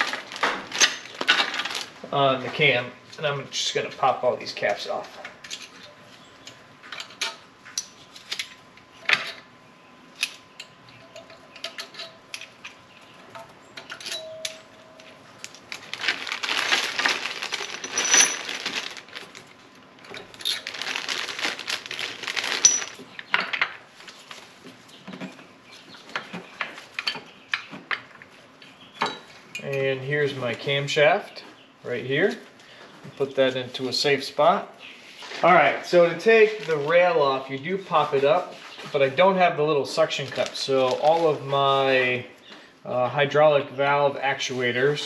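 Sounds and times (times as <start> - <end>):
plastic bag rustling: 0.0 - 2.5, 15.1 - 23.2, 23.9 - 24.9, 35.1 - 41.9
metal caps clinking: 13.4 - 19.2, 22.4 - 23.7.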